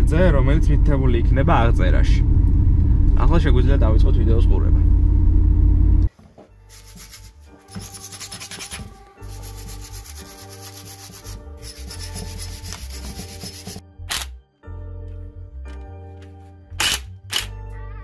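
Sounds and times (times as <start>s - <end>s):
wire brush scrubbing metal: 6.7s - 13.8s.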